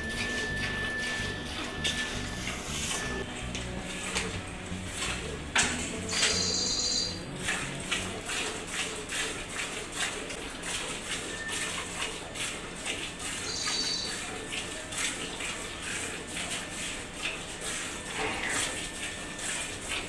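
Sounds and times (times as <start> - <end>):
milk squirting into metal bucket: 0.0 - 20.0
bird chirping: 6.0 - 7.2, 13.4 - 14.1.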